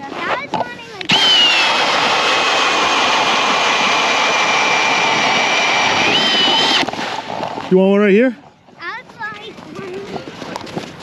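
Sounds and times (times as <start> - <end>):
power ice auger drilling: 1.0 - 7.8.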